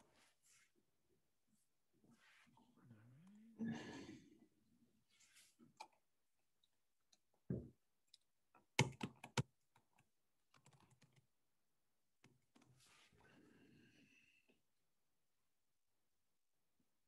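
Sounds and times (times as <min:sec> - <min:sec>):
keyboard typing: 0:08.8 - 0:09.5, 0:10.5 - 0:11.3.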